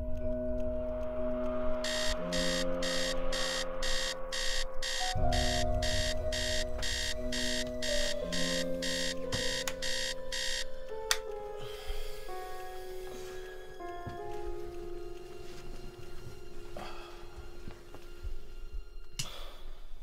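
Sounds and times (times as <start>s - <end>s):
low film score music: 0.0s - 20.0s
wristwatch alarm beeps: 1.8s - 10.7s.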